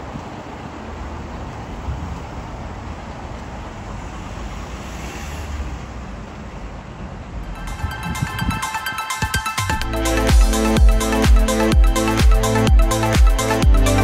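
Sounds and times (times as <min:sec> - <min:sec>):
train running by: 0:00.0 - 0:14.0.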